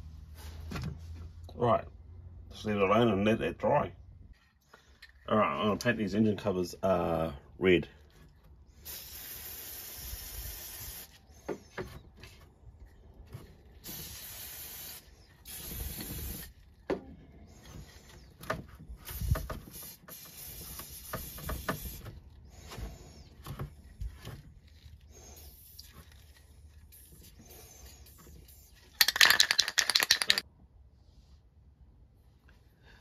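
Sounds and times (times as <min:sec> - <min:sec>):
spray can hissing: 0:08.8 - 0:11.2, 0:13.8 - 0:16.5, 0:19.4 - 0:22.0
handling clicks and knocks: 0:29.0 - 0:30.4.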